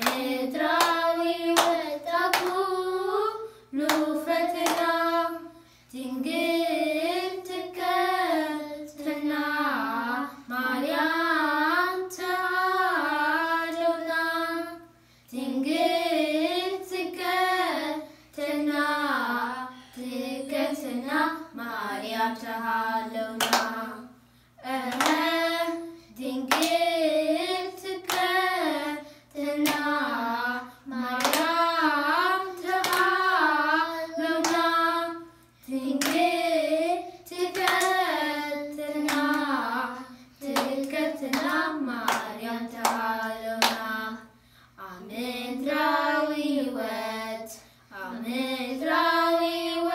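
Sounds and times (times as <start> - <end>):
hand clapping: 0.0 - 2.6, 3.8 - 5.0, 23.4 - 23.8, 24.9 - 25.8, 26.5 - 26.8, 28.0 - 28.4, 29.6 - 30.0, 31.2 - 31.6, 32.6 - 33.2, 34.4 - 34.7, 36.0 - 36.3, 37.4 - 38.1, 39.0 - 39.6, 40.4 - 43.9
children singing a hymn: 0.0 - 44.3, 44.9 - 49.9.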